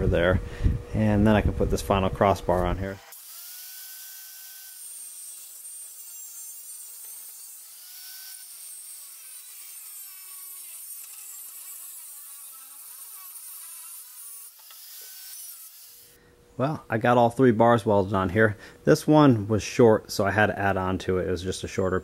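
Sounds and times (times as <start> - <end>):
angle grinder cutting steel: 2.9 - 16.2.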